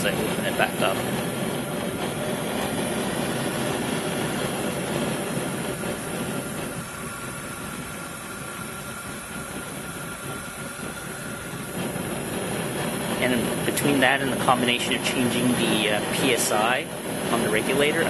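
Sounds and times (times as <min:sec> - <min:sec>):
gas burner flame rushing: 0:00.0 - 0:18.0.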